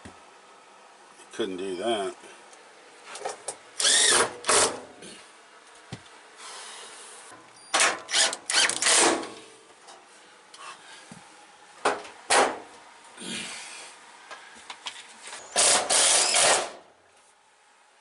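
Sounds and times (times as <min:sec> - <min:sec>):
cordless drill running in bursts: 0:03.8 - 0:04.8, 0:08.1 - 0:09.2, 0:15.6 - 0:16.7.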